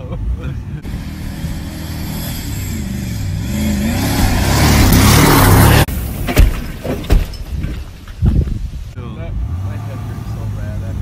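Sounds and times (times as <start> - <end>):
engine revving hard: 0.8 - 5.9
vehicle rushing over dirt: 0.8 - 11.0.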